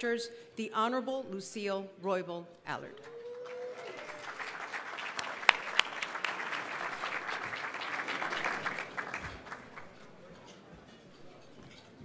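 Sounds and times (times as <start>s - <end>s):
audience applauding: 3.0s - 10.1s
sharp close claps: 3.5s - 9.9s.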